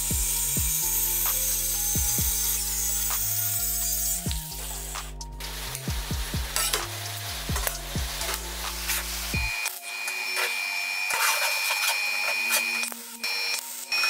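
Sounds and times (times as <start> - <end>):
electronic music kick drum beat: 0.0 - 9.6.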